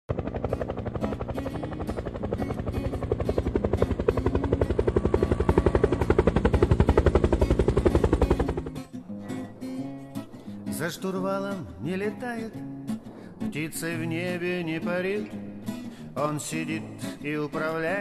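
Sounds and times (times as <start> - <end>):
helicopter rotor blades thumping: 0.1 - 8.8.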